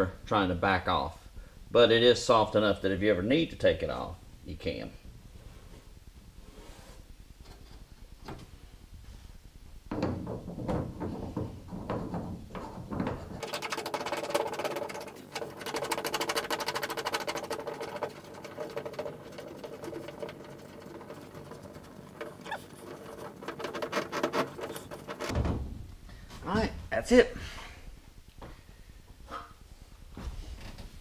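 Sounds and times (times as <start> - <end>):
knocks on metal hull: 9.9 - 14.2, 25.2 - 25.9
fast rattling scrape: 12.6 - 25.3
hand scraping sealer on boat hull: 12.6 - 25.3.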